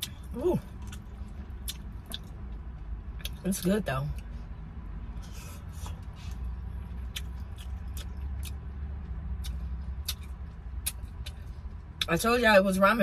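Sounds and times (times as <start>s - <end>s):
person chewing noodles: 0.0s - 2.3s, 5.2s - 8.6s
car interior rumble: 0.0s - 13.0s
wet mouth clicks: 9.4s - 11.4s.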